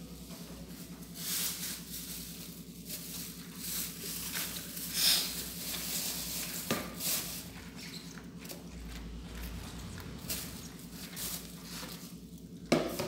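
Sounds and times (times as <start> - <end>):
plastic bin bag rustling: 0.0 - 13.0
steady low hum: 0.0 - 13.0.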